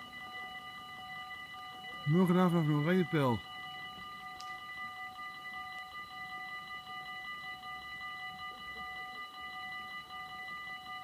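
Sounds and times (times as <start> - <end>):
level crossing bells clanging: 1.7 - 3.4.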